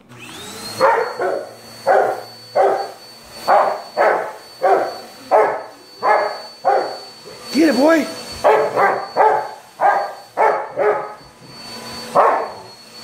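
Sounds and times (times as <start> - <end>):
vacuum cleaner motor whine: 0.0 - 13.0
dog barking: 0.8 - 7.1, 8.4 - 11.2, 12.1 - 12.6.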